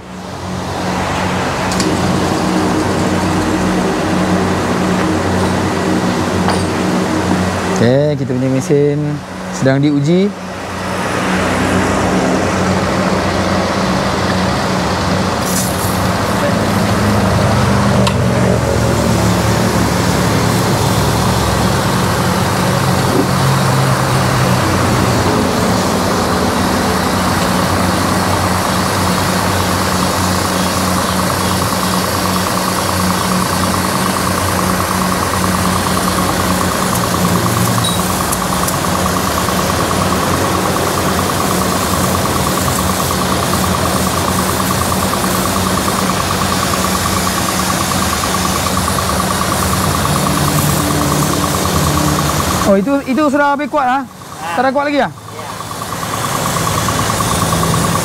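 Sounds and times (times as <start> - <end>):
pressure pump running: 0.0 - 58.0
water jet spraying: 10.7 - 17.7, 18.7 - 58.0.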